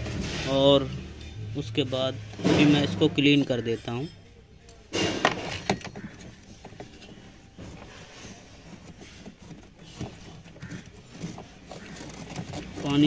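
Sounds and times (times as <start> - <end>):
finger scraping plastic pipe: 6.0 - 13.0.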